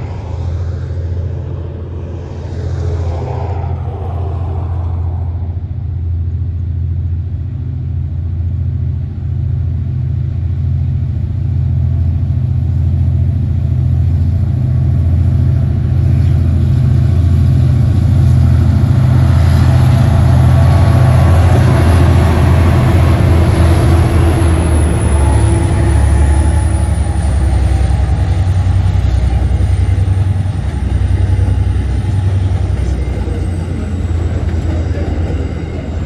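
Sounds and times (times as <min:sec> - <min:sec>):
locomotive engine drone: 0:00.0 - 0:36.0
wheel and rail noise: 0:14.2 - 0:36.0.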